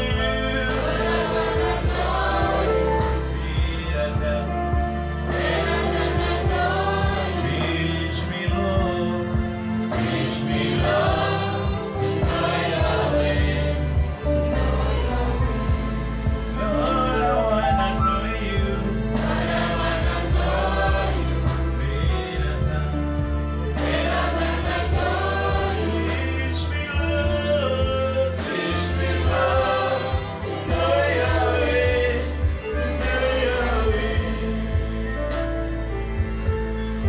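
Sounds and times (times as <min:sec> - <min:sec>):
male lead singer on microphone: 0:00.0 - 0:01.4, 0:02.8 - 0:04.9, 0:07.3 - 0:09.6, 0:16.6 - 0:19.3, 0:21.5 - 0:23.2, 0:25.9 - 0:34.6
electronic keyboard accompaniment: 0:00.0 - 0:37.0
gospel choir singing: 0:00.0 - 0:37.0
steady bass line: 0:00.0 - 0:37.0.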